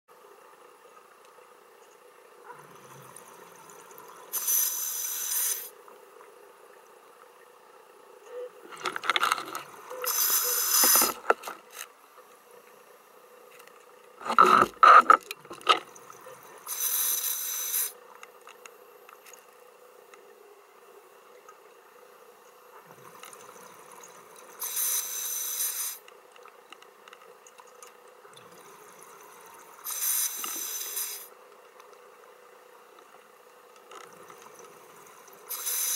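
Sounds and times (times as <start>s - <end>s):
faint steady hum: 0.1s - 35.9s
regulator hiss: 4.1s - 5.8s, 10.0s - 11.4s, 16.6s - 18.0s, 24.5s - 26.1s, 29.5s - 31.4s, 35.0s - 35.9s.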